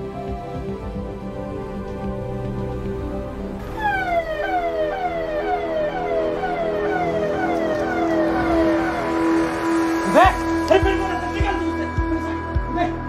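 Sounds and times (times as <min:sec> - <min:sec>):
background music sustained notes: 0:00.0 - 0:13.0
siren sweeping down: 0:03.5 - 0:12.1.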